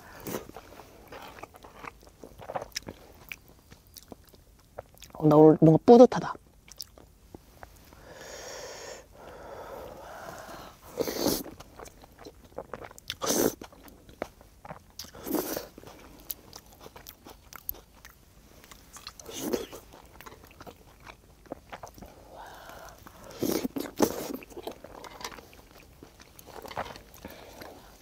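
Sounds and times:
wet chewing with mouth clicks: 0.0s - 5.2s, 6.6s - 8.0s, 9.2s - 28.0s
biting and slurping: 10.3s - 28.0s.

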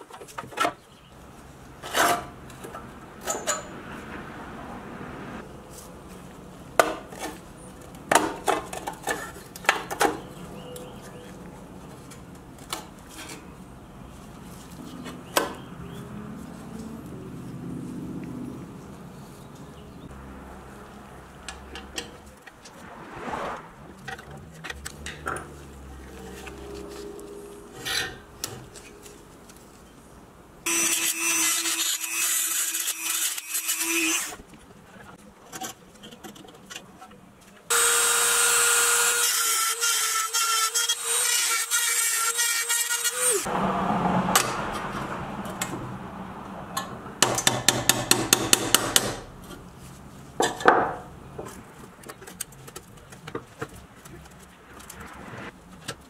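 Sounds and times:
metal scraping and prying: 24.0s - 29.1s.

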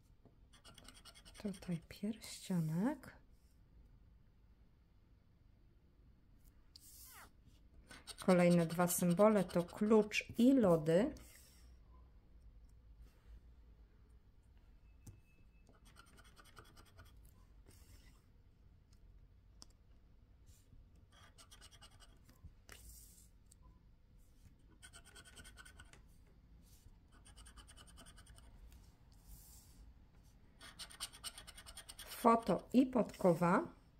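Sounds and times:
scratch card being scratched: 0.5s - 1.6s, 7.9s - 10.2s, 15.7s - 18.2s, 21.1s - 22.8s, 24.7s - 26.0s, 27.1s - 28.5s, 30.6s - 32.6s.

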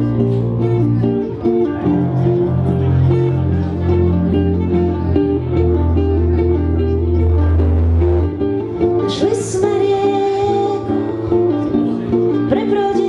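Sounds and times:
acoustic guitar playing: 0.0s - 13.0s
bass guitar playing: 0.0s - 13.0s
woman singing: 8.9s - 13.0s.

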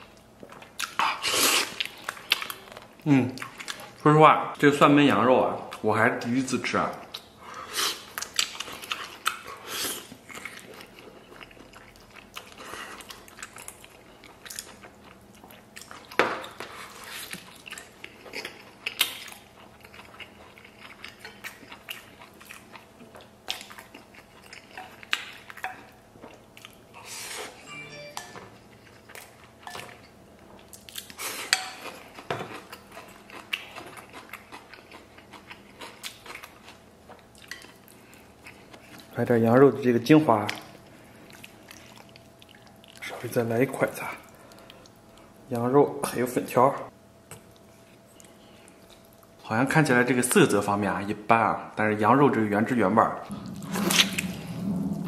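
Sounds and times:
person chewing meat: 0.0s - 4.0s, 6.9s - 27.2s, 28.6s - 39.2s, 40.4s - 43.3s, 44.0s - 45.4s, 47.4s - 49.4s, 53.2s - 55.0s.

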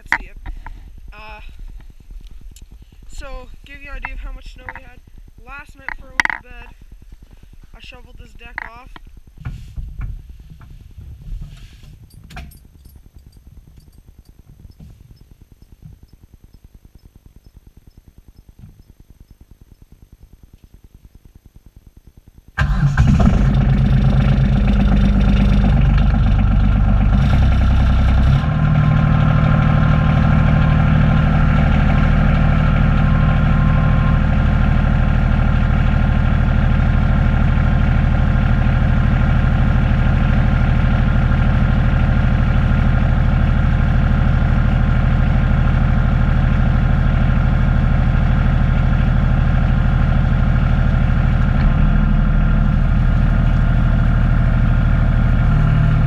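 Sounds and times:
diesel tractor engine starting: 22.6s - 56.0s.

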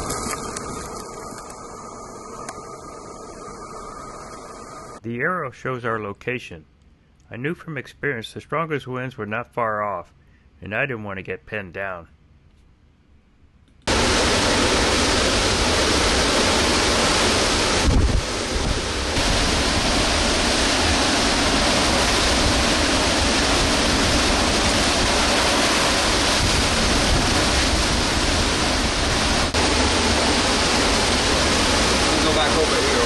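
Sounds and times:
driving rain: 0.0s - 5.0s, 13.9s - 33.0s
hurricane winds through trees: 0.0s - 5.0s, 13.9s - 33.0s
wind buffeting microphone: 13.9s - 32.2s.

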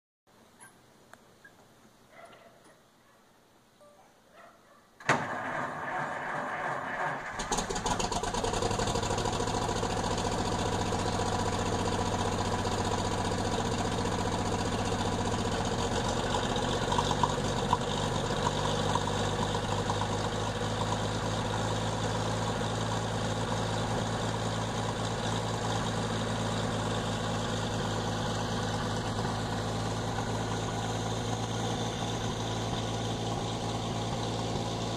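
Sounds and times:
truck engine starter cranking: 5.0s - 8.4s
truck engine idling: 5.3s - 34.9s.

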